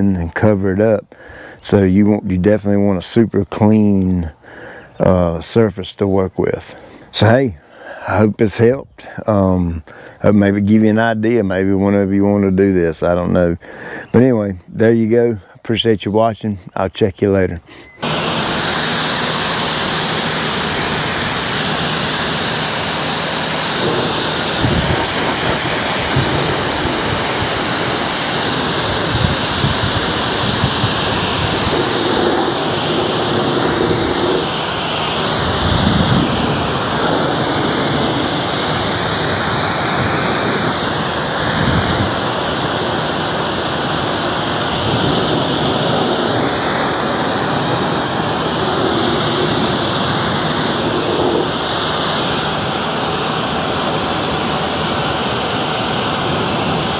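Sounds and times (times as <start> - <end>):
pressure washer spraying water: 18.0 - 56.9.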